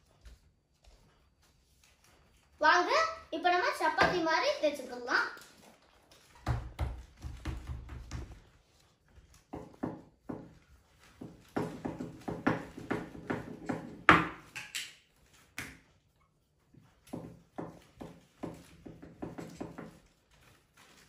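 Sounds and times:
rolling pin rolling dough: 0:06.3 - 0:14.5, 0:15.2 - 0:21.0.

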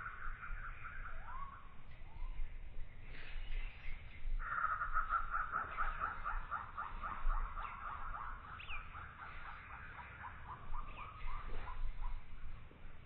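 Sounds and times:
animal chattering call: 0:00.0 - 0:01.8, 0:04.4 - 0:12.5.

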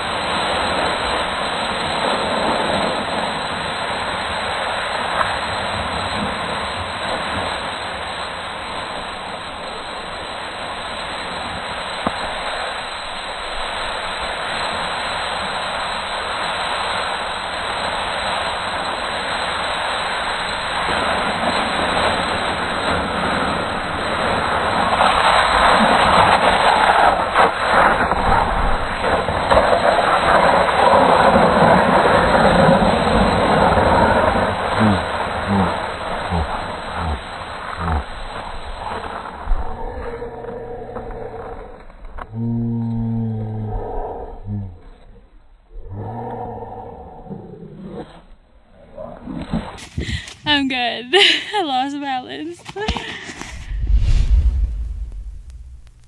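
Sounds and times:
skis sliding over packed snow: 0:00.0 - 0:42.2, 0:49.5 - 0:56.0
wind on the microphone: 0:49.8 - 0:50.3, 0:53.5 - 0:56.0.

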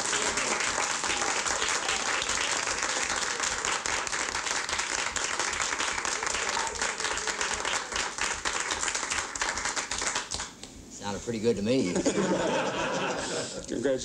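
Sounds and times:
people applauding: 0:00.0 - 0:10.6.

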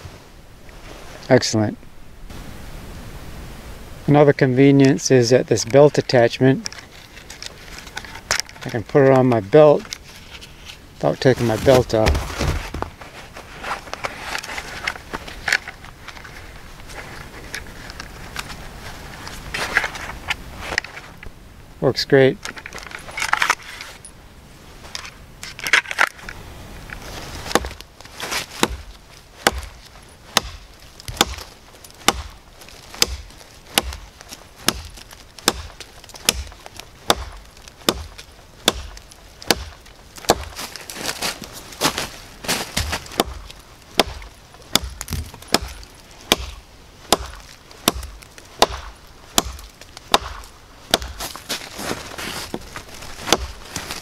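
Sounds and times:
knife chopping into log: 0:27.5 - 0:27.8, 0:28.4 - 0:29.8, 0:30.4 - 0:32.4, 0:33.0 - 0:34.0, 0:34.6 - 0:40.6, 0:42.7 - 0:43.4, 0:44.0 - 0:51.4, 0:52.5 - 0:53.6.

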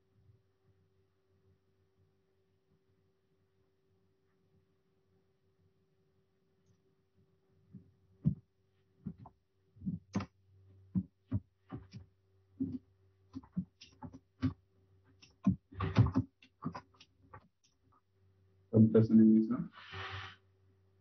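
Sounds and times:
typing on keyboard: 0:15.2 - 0:17.8.

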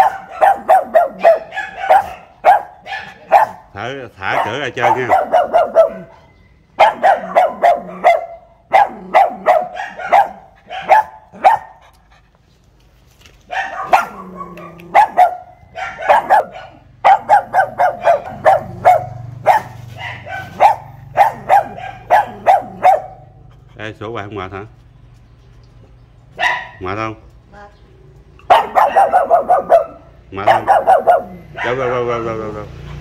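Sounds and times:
dog barking sharply: 0:00.0 - 0:03.7, 0:04.3 - 0:06.2, 0:06.8 - 0:11.8, 0:13.5 - 0:23.3, 0:26.4 - 0:26.8, 0:28.5 - 0:32.0.

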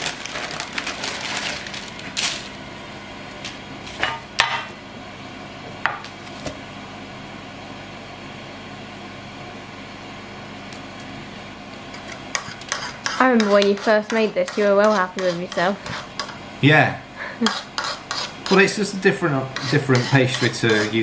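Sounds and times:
parchment paper rustling: 0:00.0 - 0:02.6
steady low hum: 0:00.0 - 0:21.0.

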